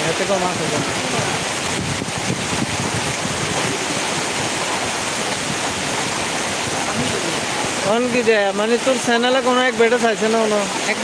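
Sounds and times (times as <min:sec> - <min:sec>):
flowing floodwater: 0:00.0 - 0:11.0
rain hissing: 0:00.0 - 0:11.0
wind buffeting microphone: 0:00.1 - 0:08.0.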